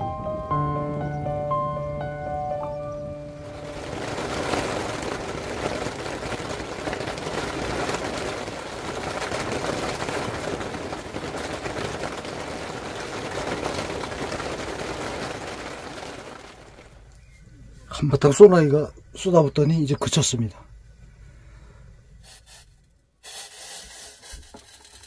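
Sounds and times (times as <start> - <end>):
rain on tent fabric: 3.2 - 18.7.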